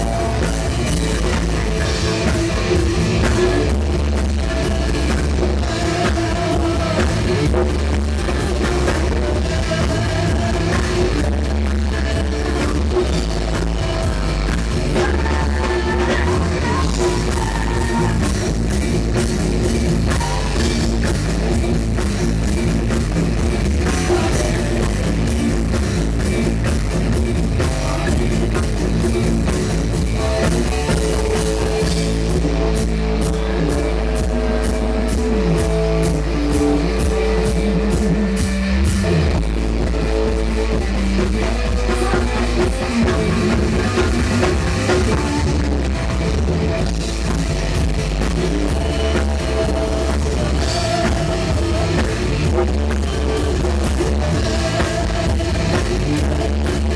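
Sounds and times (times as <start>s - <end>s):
bass guitar: 0.0s - 56.9s
drum kit: 0.0s - 56.9s
electric guitar: 0.0s - 56.9s
woman singing: 13.8s - 18.3s.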